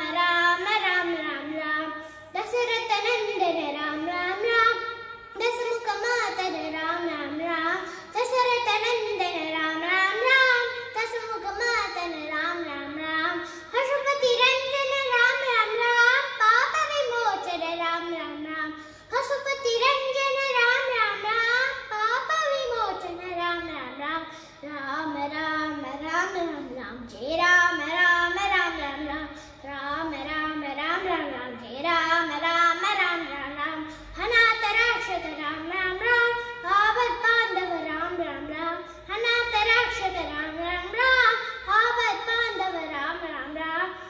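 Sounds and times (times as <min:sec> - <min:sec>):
boy singing unaccompanied: 0:00.0 - 0:04.8
boy singing: 0:00.0 - 0:44.0.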